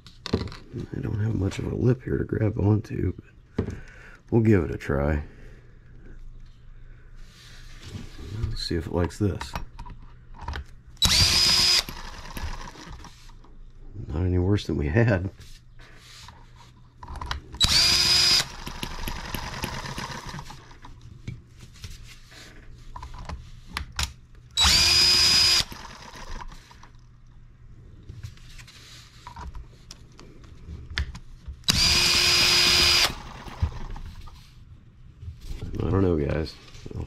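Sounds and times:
cordless drill whining: 0:11.0 - 0:13.1, 0:17.6 - 0:20.6, 0:24.6 - 0:26.8, 0:31.7 - 0:34.0.

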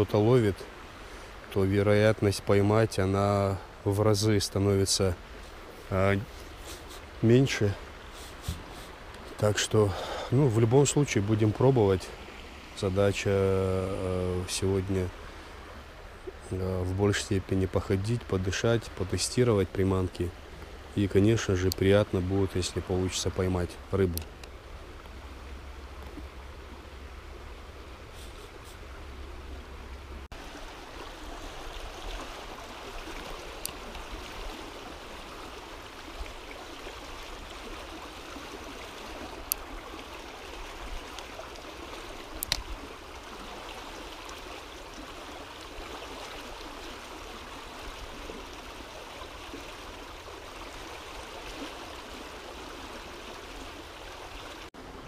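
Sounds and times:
mountain river flowing: 0:00.0 - 0:55.0
sharp clicks: 0:42.4 - 0:42.7.

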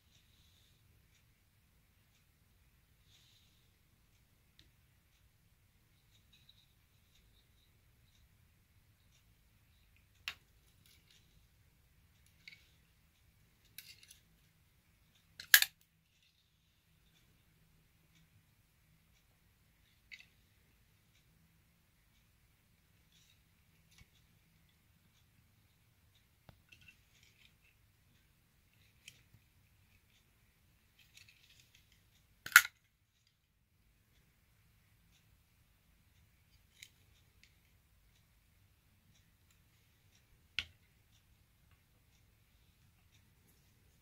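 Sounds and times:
knife handling clicks and rustles: 0:13.6 - 0:14.3, 0:15.4 - 0:16.3, 0:31.0 - 0:32.8
metallic clicks of folding knives: 0:15.4 - 0:15.8, 0:32.4 - 0:32.8.

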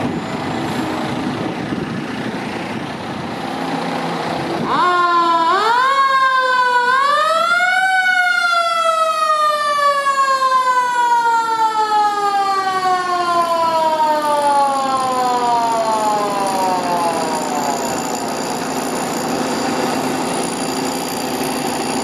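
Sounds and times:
mechanical siren wailing: 0:04.6 - 0:22.0.

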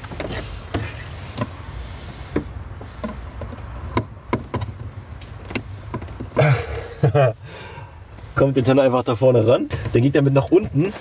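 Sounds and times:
handling clicks and taps: 0:02.3 - 0:06.4.

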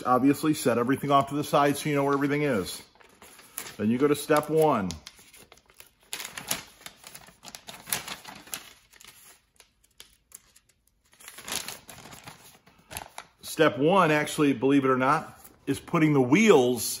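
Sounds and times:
paper crinkling and rustling: 0:01.2 - 0:13.4.

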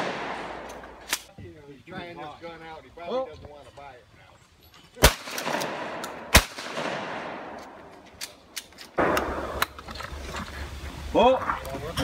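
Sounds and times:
shotgun shots with rolling echo: 0:00.0 - 0:01.1, 0:05.0 - 0:07.9, 0:09.0 - 0:09.6.

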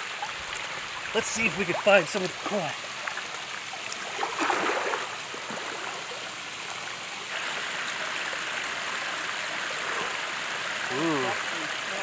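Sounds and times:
running water rushing: 0:00.0 - 0:12.0
splash in water: 0:03.9 - 0:06.2.

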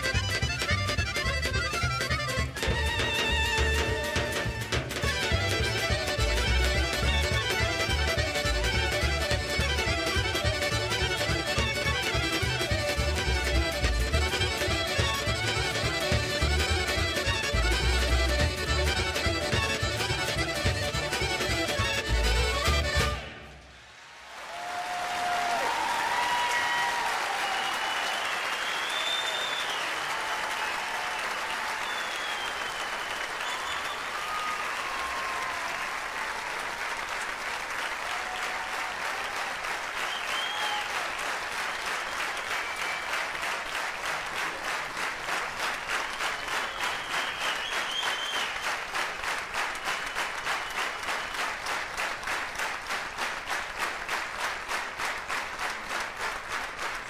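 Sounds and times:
audience applauding: 0:23.6 - 0:57.0
whistles: 0:27.6 - 0:30.2, 0:31.7 - 0:35.4, 0:40.0 - 0:41.0, 0:42.0 - 0:43.3, 0:46.2 - 0:48.8, 0:49.8 - 0:51.6.

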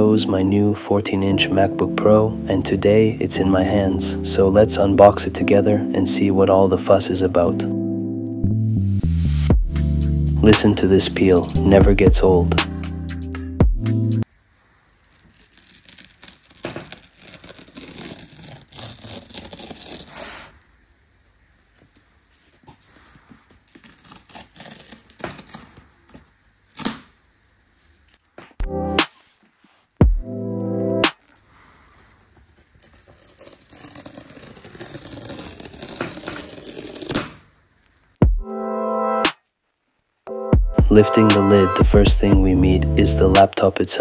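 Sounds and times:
paper tear strip ripping: 0:15.0 - 0:20.6, 0:22.6 - 0:27.1, 0:31.0 - 0:37.4.

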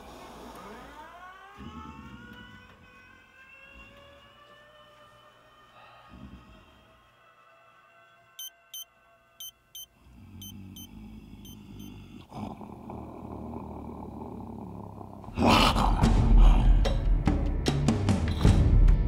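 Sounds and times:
dramatic music with drum hits: 0:15.8 - 0:19.0.

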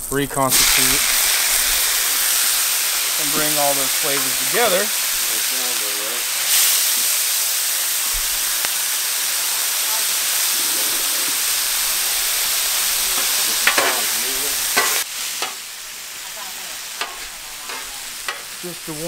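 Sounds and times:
meat sizzling on griddle: 0:00.0 - 0:19.0
metal spatula scraping steel: 0:12.9 - 0:15.7, 0:17.0 - 0:18.6.

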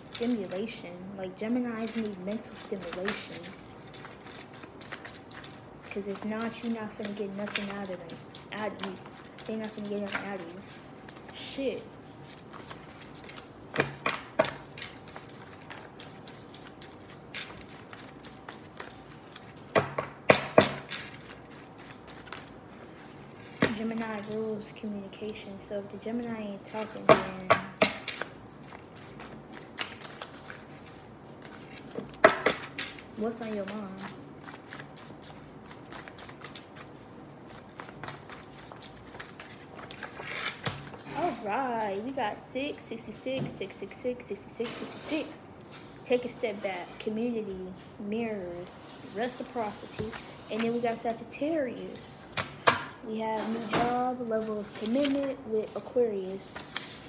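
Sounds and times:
cards being shuffled: 0:01.7 - 0:24.4, 0:28.0 - 0:41.3, 0:53.5 - 0:55.8.

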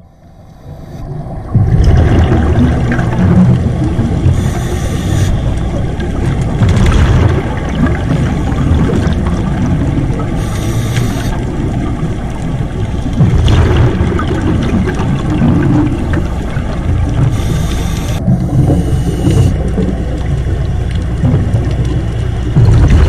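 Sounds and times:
steady low underwater rumble: 0:00.0 - 0:23.0
gurgling exhaled bubbles: 0:01.1 - 0:23.0
regulator hissing inhale: 0:10.4 - 0:11.4.

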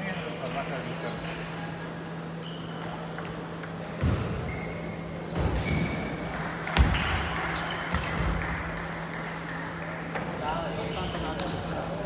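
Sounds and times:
table tennis ball hits: 0:05.4 - 0:09.6.

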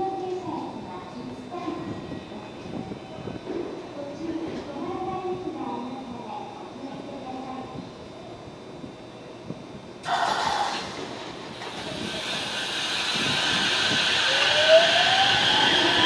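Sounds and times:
electric train running noise: 0:10.0 - 0:16.0
compressed air hiss: 0:11.6 - 0:14.4
motor whine rising in pitch: 0:11.7 - 0:16.0.

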